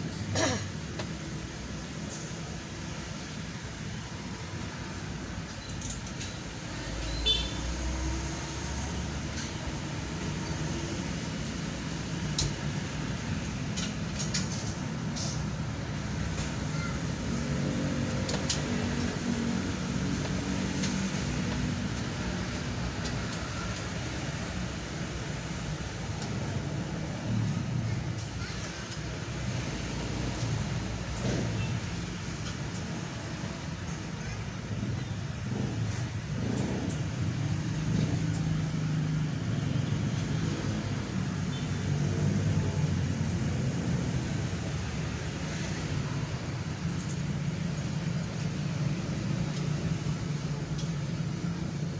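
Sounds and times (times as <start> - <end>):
constant traffic hum: 0.0 - 51.9
motorbikes passing: 15.5 - 33.8, 34.7 - 51.9.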